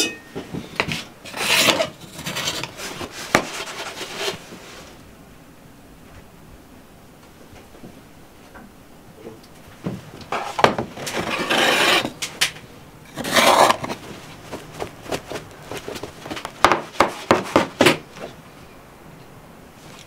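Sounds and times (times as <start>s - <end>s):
trays scraping on table: 0.6s - 4.5s, 10.3s - 12.3s, 13.1s - 17.7s.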